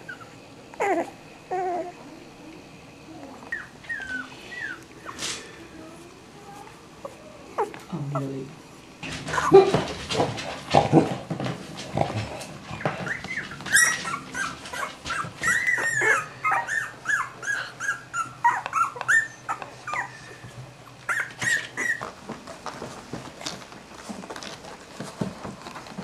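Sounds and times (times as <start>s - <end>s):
dog whimpering: 0.0s - 2.4s, 3.2s - 8.5s, 12.8s - 22.1s.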